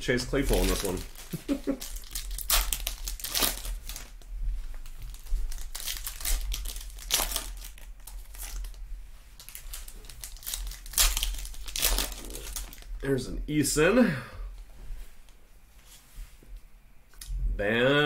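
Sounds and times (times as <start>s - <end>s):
foil wrapper crinkling: 0.2s - 4.2s, 4.8s - 8.8s, 9.4s - 13.0s.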